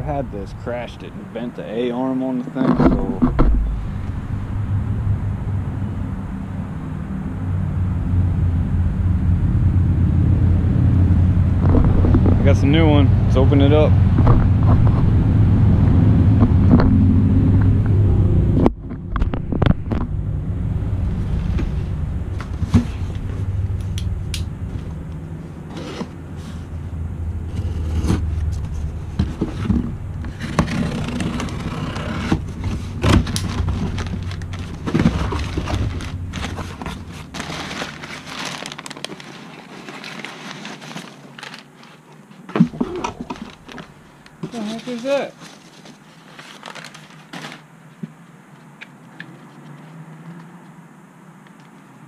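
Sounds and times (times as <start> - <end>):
wind rumbling on microphone: 2.7 - 25.7
packing peanuts rustling: 33.2 - 42.4, 43.2 - 47.7.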